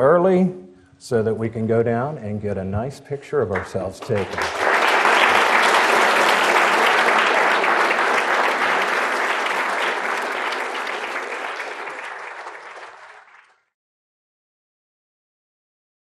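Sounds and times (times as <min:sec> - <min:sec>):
audience applauding: 0:03.6 - 0:13.7.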